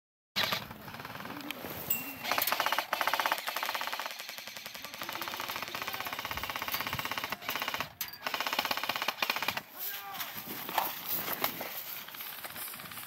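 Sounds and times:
airsoft rifles automatic fire: 0.4s - 1.5s, 2.2s - 9.9s.

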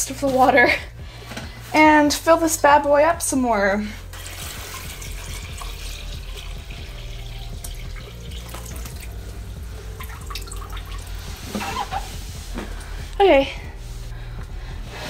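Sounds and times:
water pouring and splashing: 4.1s - 12.7s.

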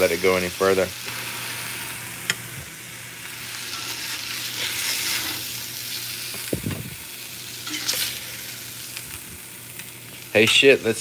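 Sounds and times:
steak sizzling in a skillet: 0.0s - 11.0s.

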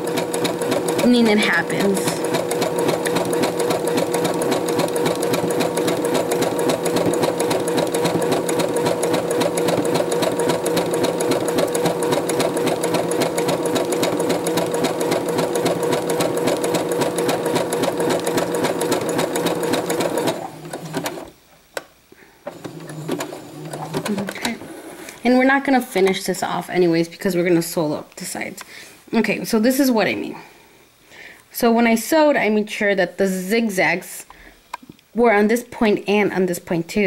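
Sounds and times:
sewing machine running: 0.0s - 21.3s, 22.5s - 24.9s.

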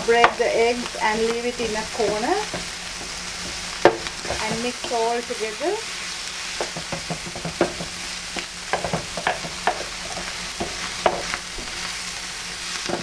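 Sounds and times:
food sizzling on a griddle: 0.0s - 13.0s
spatula scraping a griddle: 5.9s - 13.0s.

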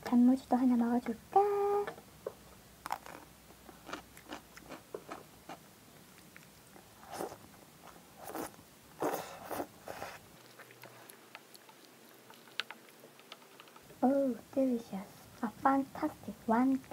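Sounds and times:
crunching bites of pickled radish: 2.8s - 13.4s
slurping and chewing noodles: 6.2s - 13.9s.

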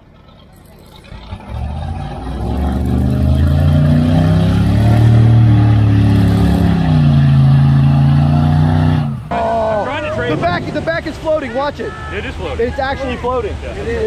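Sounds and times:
wheels throwing mud: 0.0s - 11.2s
truck engine revving: 0.0s - 11.4s.

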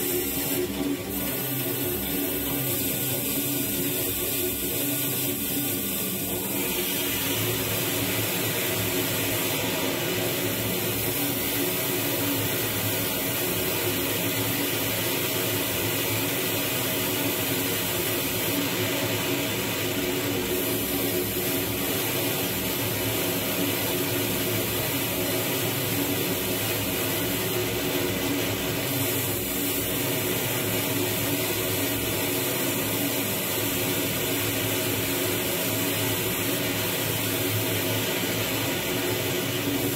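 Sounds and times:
electronic noise drone: 0.0s - 15.0s
bright high hiss: 0.0s - 18.6s.

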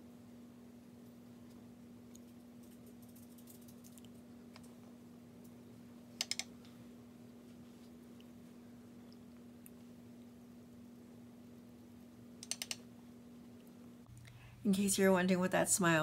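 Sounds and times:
low electrical hum: 0.0s - 16.0s
sharp clicks: 6.2s - 6.5s, 12.4s - 12.8s.

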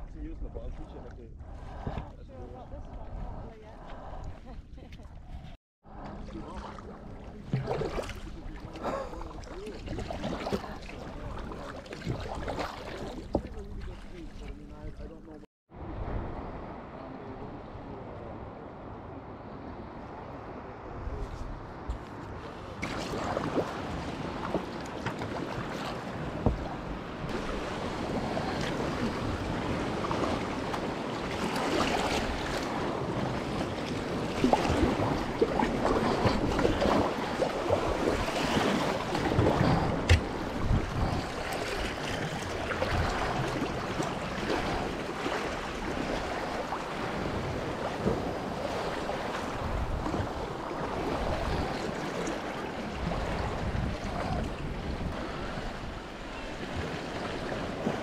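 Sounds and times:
water sloshing and splashing: 0.0s - 15.5s, 21.3s - 58.0s
wind on microphone: 0.0s - 58.0s
water washing against rocks: 27.3s - 50.5s.

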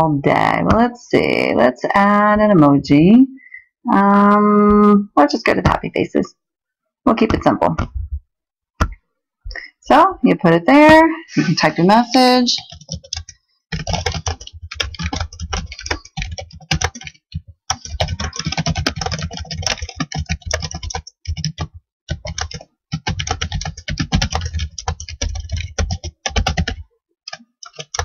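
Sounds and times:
fast typing on keyboard: 12.6s - 28.0s.

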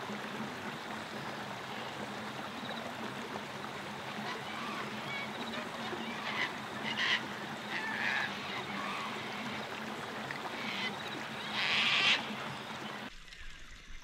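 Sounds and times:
flowing water rushing: 0.0s - 14.0s
birds calling: 4.2s - 9.8s.

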